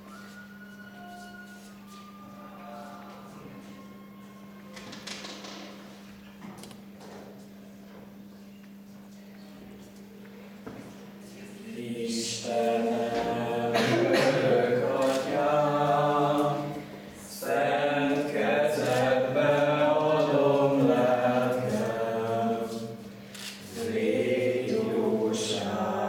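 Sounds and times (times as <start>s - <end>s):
voices singing unaccompanied: 11.4s - 26.0s.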